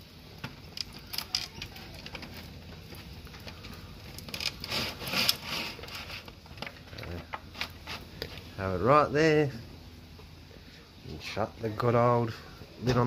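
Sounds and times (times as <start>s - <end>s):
foil tray rustling on grill: 0.6s - 8.6s.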